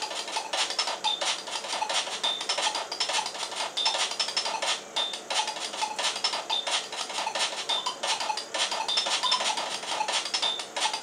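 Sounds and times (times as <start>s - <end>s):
chiptune music: 0.0s - 11.0s.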